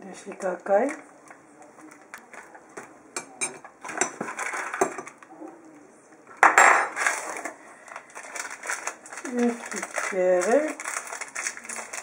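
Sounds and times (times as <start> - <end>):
packets and cardboard box rustling: 7.0 - 12.0.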